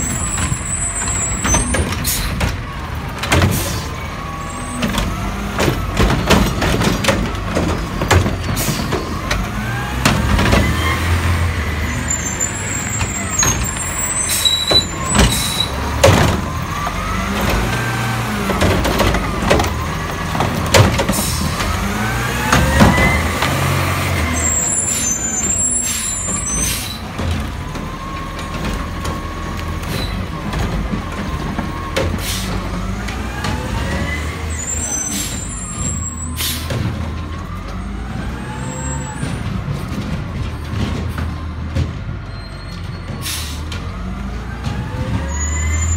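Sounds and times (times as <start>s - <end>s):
garbage truck engine running: 0.0s - 45.9s
trash cart knocking: 4.8s - 10.8s, 14.7s - 21.8s.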